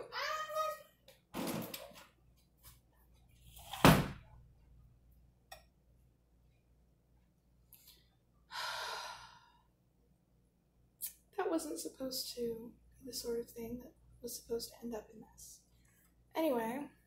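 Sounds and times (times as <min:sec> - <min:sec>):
woman exhaling sharply: 0:08.5 - 0:09.6
woman sighing: 0:08.5 - 0:09.6.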